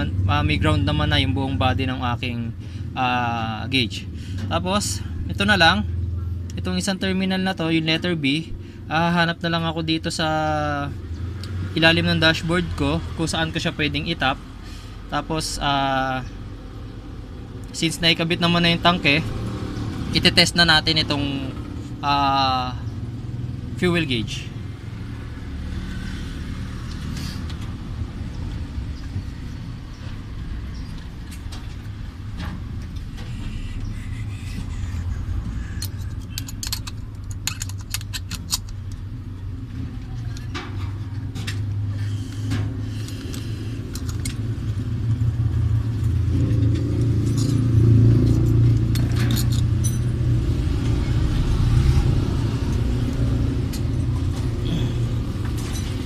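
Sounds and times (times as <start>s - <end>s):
motor vehicle rumble: 0.0s - 56.0s
metallic clicks and jingles: 35.4s - 39.1s, 46.5s - 51.2s.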